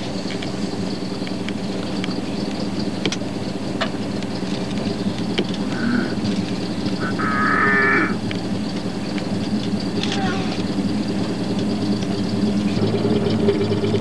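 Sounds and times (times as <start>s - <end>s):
vehicle engine idling: 0.0s - 14.0s
bird cawing: 7.0s - 8.2s
harsh bird call: 7.0s - 8.2s.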